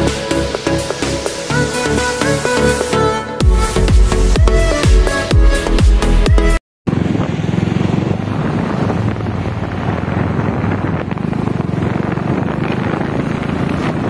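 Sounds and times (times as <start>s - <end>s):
vehicle engine and road noise: 0.0s - 14.0s
wind buffeting microphone: 6.9s - 14.0s.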